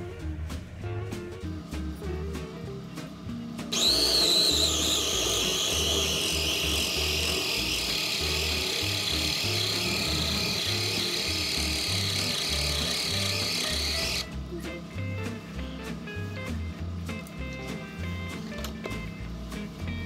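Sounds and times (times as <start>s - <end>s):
food chopper motor whine: 3.7s - 14.5s.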